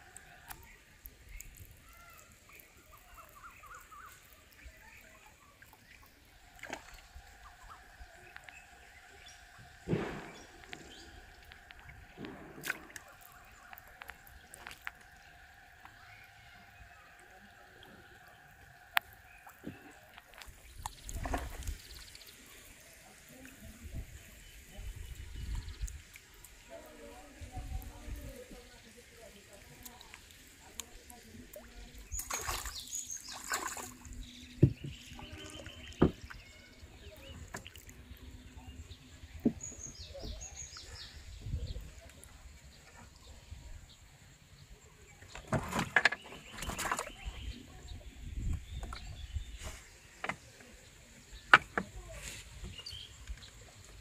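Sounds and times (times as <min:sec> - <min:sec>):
water lapping and dripping: 0:00.0 - 0:54.0
knocks against wooden boat: 0:36.0 - 0:36.3.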